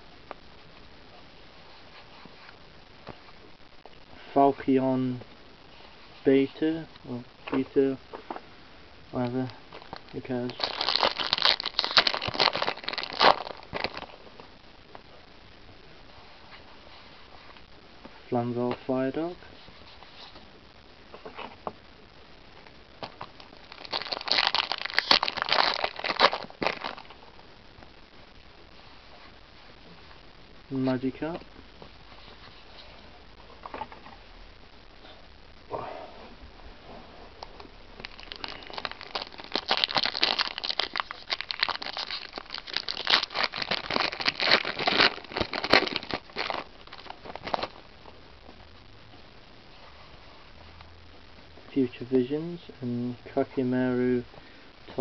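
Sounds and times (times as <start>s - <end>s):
foil wrapper crinkling: 9.7s - 14.2s, 23.0s - 27.2s, 38.0s - 47.8s.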